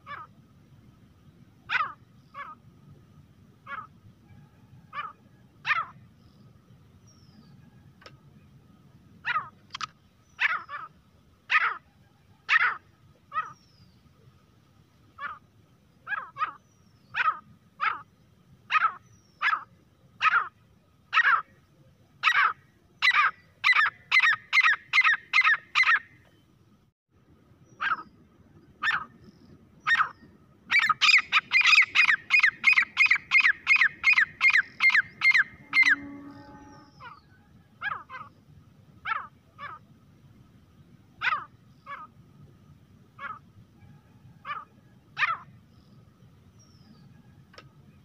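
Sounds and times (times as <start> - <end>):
bird calling harshly: 22.2 - 26.1, 29.8 - 38.3.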